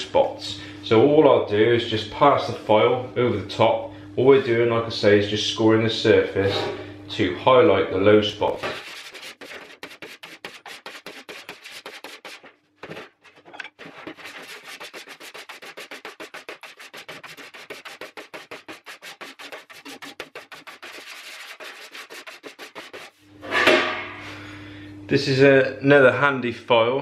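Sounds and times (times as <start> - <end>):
file rasping over sheet metal: 8.6 - 13.0, 13.7 - 23.2.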